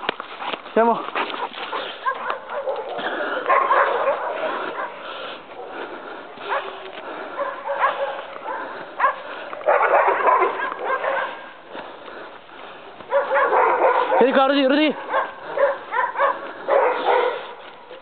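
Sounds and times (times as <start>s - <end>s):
dog barking: 1.6s - 5.8s, 6.4s - 11.6s, 13.1s - 17.7s.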